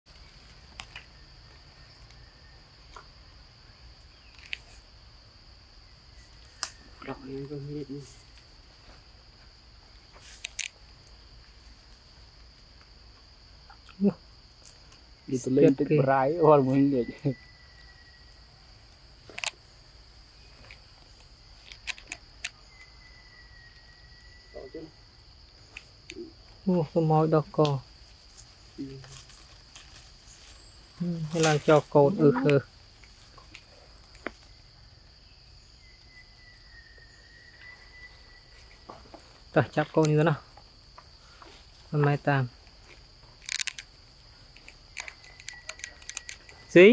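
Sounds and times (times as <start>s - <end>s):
insects droning: 0.1s - 46.9s
sharp clicks: 44.5s - 46.6s.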